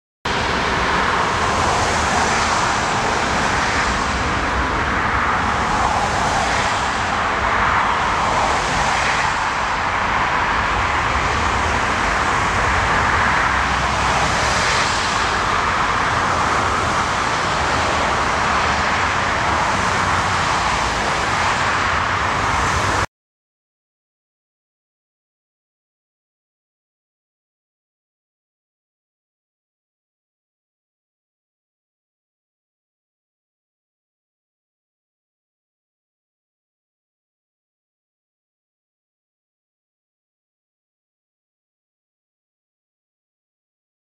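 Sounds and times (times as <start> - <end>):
jet engines roaring: 0.3 - 23.1
wind rumbling on microphone: 0.3 - 23.1.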